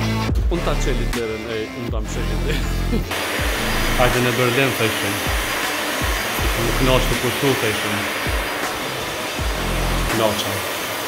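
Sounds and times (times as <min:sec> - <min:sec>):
background music with bass thumps: 0:00.0 - 0:01.3, 0:01.9 - 0:04.3, 0:05.3 - 0:07.2, 0:09.4 - 0:10.2
steady rushing noise: 0:03.1 - 0:11.0.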